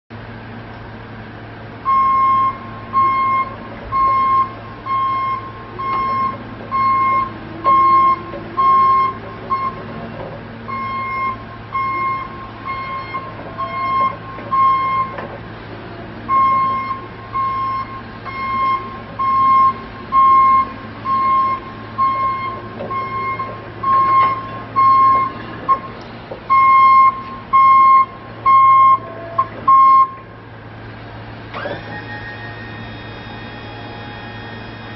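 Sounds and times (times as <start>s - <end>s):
travel alarm beeping: 1.9s - 9.8s, 10.7s - 15.1s, 16.3s - 25.9s, 26.5s - 30.2s.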